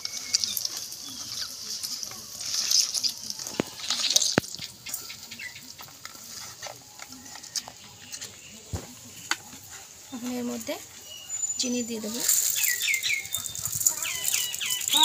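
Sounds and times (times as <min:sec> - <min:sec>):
wet squishing of soft fruit: 0:00.0 - 0:15.0.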